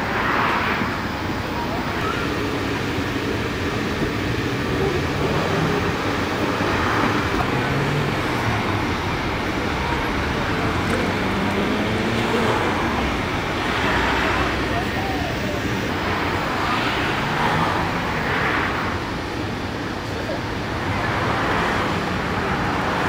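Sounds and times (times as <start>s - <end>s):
low hum drifting in pitch: 0.0s - 18.4s
steady rushing noise: 0.0s - 23.0s.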